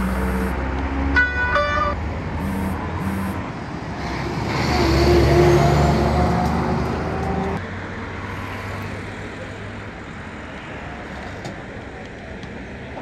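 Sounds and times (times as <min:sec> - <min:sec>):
short horn-like tone: 0:00.0 - 0:00.6, 0:02.4 - 0:03.4
vehicle passing: 0:00.0 - 0:01.2, 0:02.0 - 0:07.6.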